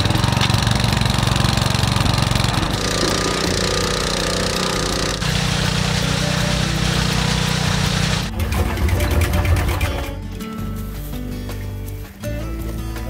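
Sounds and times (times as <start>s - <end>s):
motor pump engine running: 0.0s - 10.4s.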